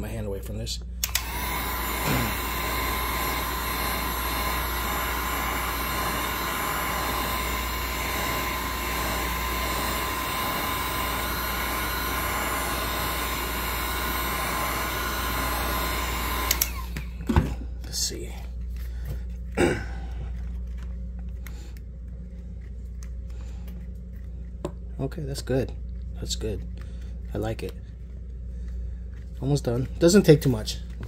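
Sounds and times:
heat gun blowing with whine: 0:01.0 - 0:17.4.

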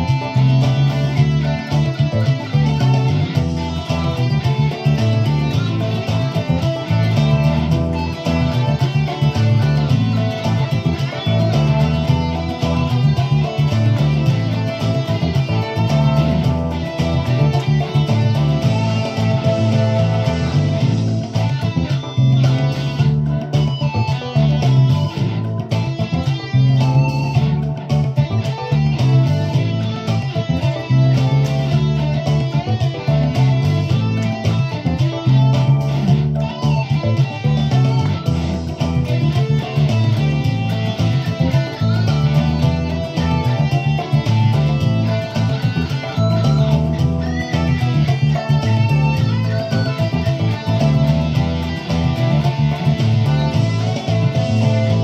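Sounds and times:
electric guitar playing boogie: 0:00.0 - 0:55.0.

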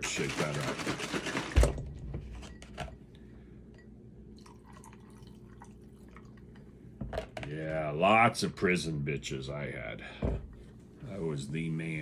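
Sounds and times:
juice trickling into glass: 0:04.3 - 0:06.7.

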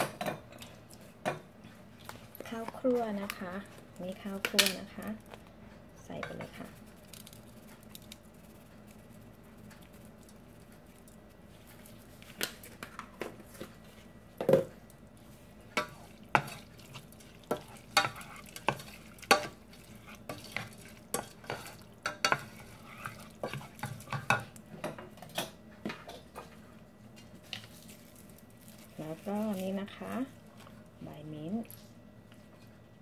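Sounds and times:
wooden spoon scraping a pot: 0:15.7 - 0:24.5.

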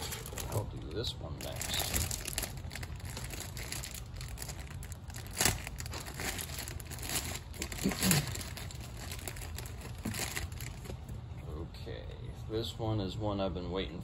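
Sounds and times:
packaging crinkling and rustling: 0:00.0 - 0:11.2.

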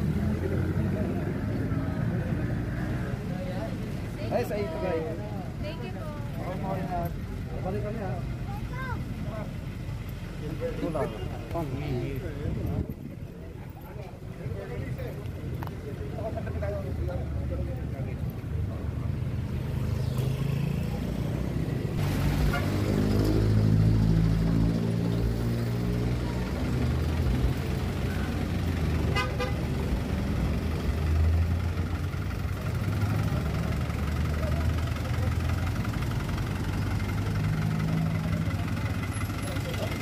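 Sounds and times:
vehicle engines running: 0:00.0 - 0:40.0.

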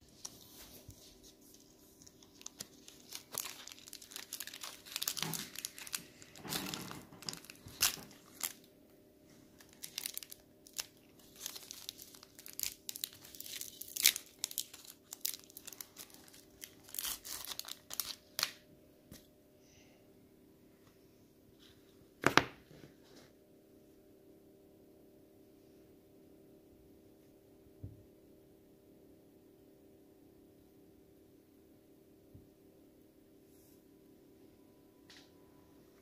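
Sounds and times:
plastic wrapper crinkling and tearing: 0:00.0 - 0:08.7, 0:09.4 - 0:18.6.

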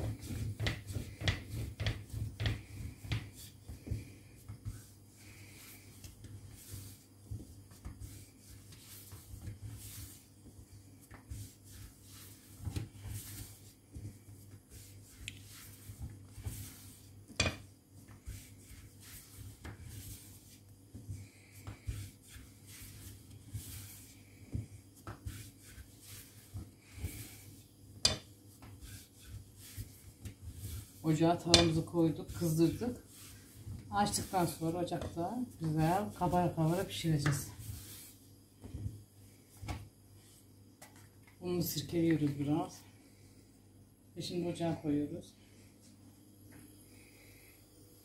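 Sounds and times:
rolling pin rolling dough: 0:00.0 - 0:42.8
low steady hum: 0:00.0 - 0:48.0.

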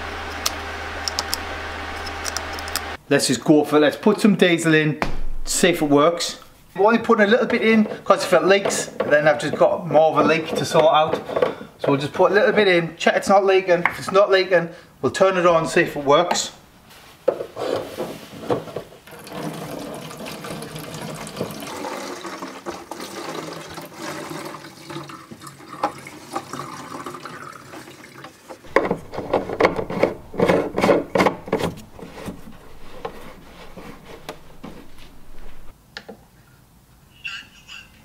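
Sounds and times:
liquid pouring into tank: 0:19.1 - 0:34.9
knocks and glugging: 0:28.6 - 0:35.7.

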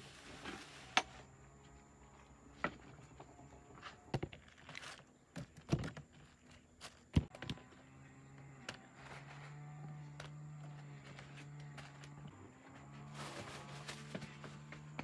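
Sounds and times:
basket rustle: 0:12.9 - 0:14.7.

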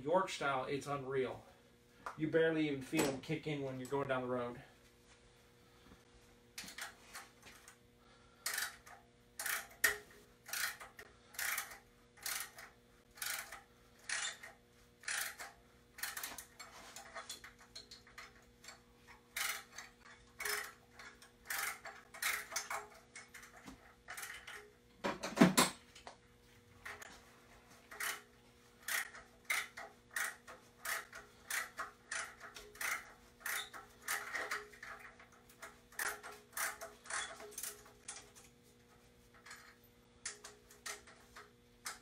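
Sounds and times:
ratchet wrench clicking: 0:08.4 - 0:24.7, 0:27.9 - 0:38.2.

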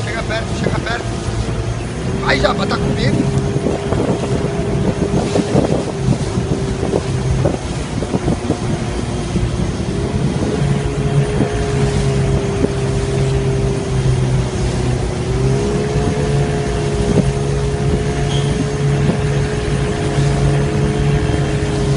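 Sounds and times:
boat engine running: 0:00.0 - 0:21.9
rushing water: 0:00.0 - 0:21.9
wind hiss: 0:00.0 - 0:21.9.

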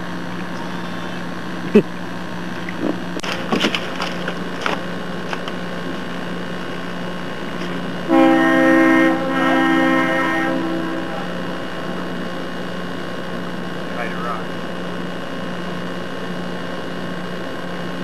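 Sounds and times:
air horn chord blasts: 0:08.0 - 0:12.7.

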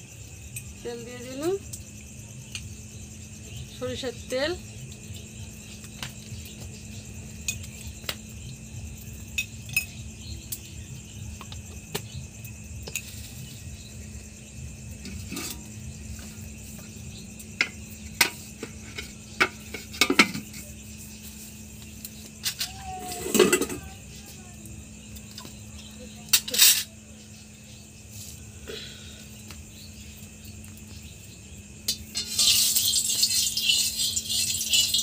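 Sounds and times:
crickets chirping: 0:00.0 - 0:35.0
metal kitchenware clinking: 0:15.0 - 0:15.7, 0:22.5 - 0:23.8, 0:26.3 - 0:26.9, 0:31.9 - 0:35.0
steel lid clattering on pot: 0:32.1 - 0:35.0.

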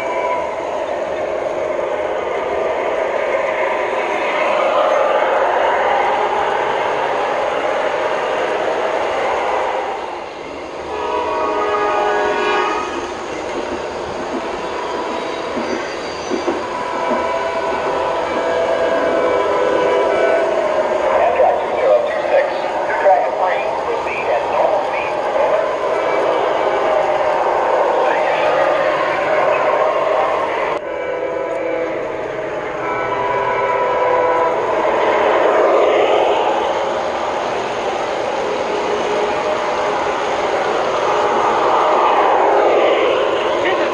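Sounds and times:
model train rolling rumble: 0:00.0 - 0:43.9
train horn chord: 0:10.8 - 0:13.1, 0:16.6 - 0:22.4, 0:30.7 - 0:36.4.

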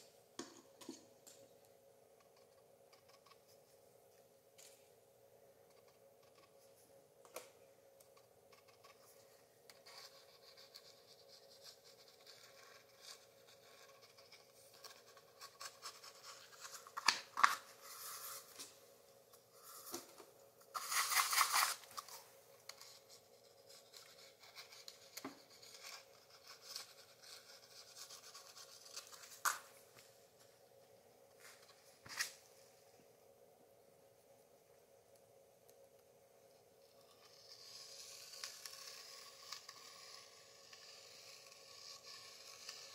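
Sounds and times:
faint steady hum: 0:00.0 - 0:42.9.

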